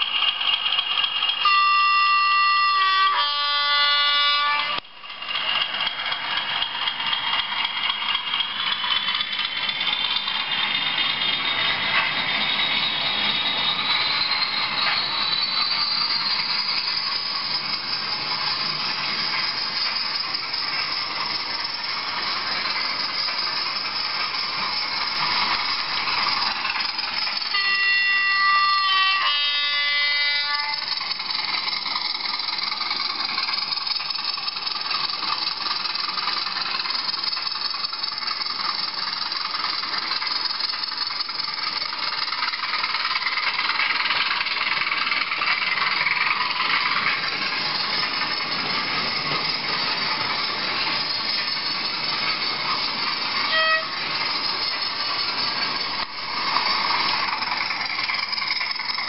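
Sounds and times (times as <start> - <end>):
model train two-tone horn: 1.4 - 4.9, 27.4 - 31.1, 53.4 - 54.2
model diesel engine running: 5.0 - 27.6, 30.8 - 59.0.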